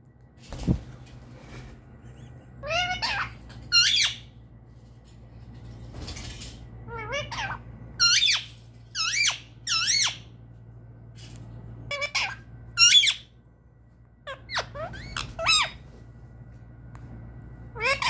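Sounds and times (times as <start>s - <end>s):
parakeet calling: 2.6s - 4.4s, 6.9s - 10.3s, 11.9s - 13.4s, 14.2s - 15.9s, 17.7s - 18.0s.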